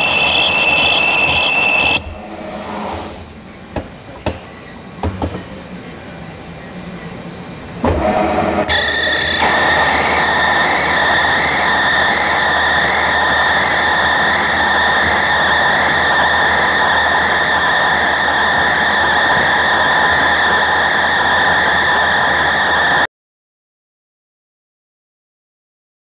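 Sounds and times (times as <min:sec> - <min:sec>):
lathe high-pitched whine: 0:00.0 - 0:03.4, 0:06.5 - 0:23.1
machine running noise: 0:00.0 - 0:05.6, 0:06.8 - 0:23.1.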